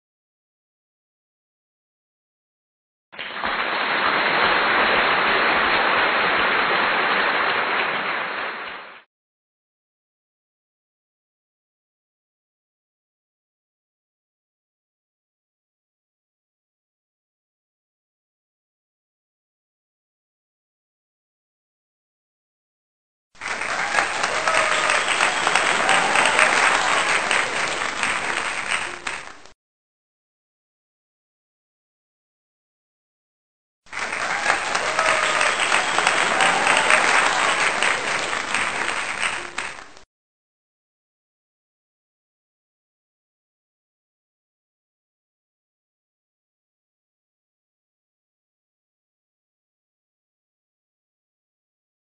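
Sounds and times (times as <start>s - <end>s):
dense applause: 3.2s - 9.1s, 23.4s - 29.6s, 33.9s - 40.1s.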